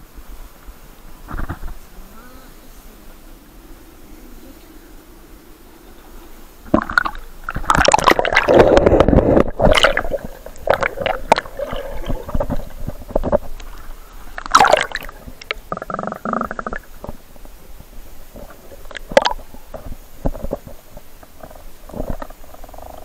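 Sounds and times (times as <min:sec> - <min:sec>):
river water splashing: 0:06.6 - 0:15.8
muffled underwater bubbling: 0:06.6 - 0:17.2, 0:18.3 - 0:23.0.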